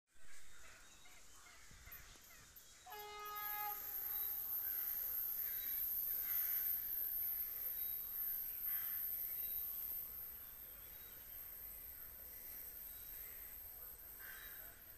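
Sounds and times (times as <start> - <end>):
distant train horn: 2.8 - 6.3.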